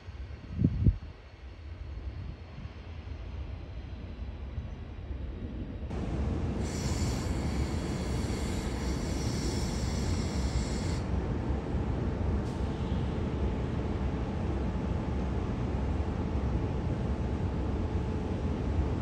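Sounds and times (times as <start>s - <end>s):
electric locomotive rumbling: 5.5s - 19.0s
high hiss: 5.9s - 11.1s.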